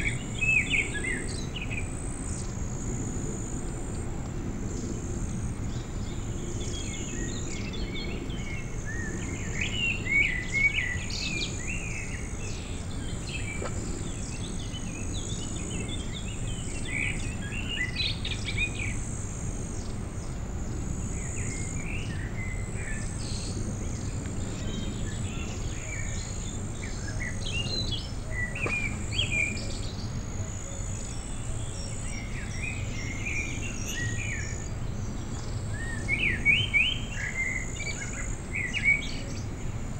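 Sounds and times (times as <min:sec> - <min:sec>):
steady low rumble: 0:00.0 - 0:36.0
small birds chirping: 0:19.6 - 0:39.6.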